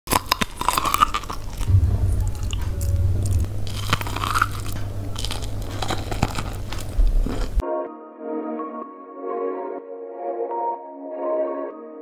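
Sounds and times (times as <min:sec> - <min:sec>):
chewing corn on the cob: 0:00.1 - 0:01.7, 0:03.8 - 0:07.6.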